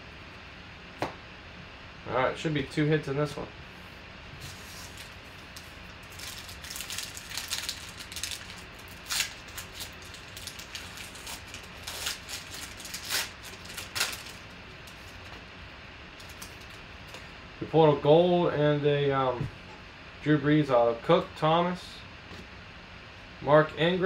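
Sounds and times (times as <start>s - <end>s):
foil wrapper tearing and crinkling: 4.4s - 15.3s, 16.2s - 16.8s.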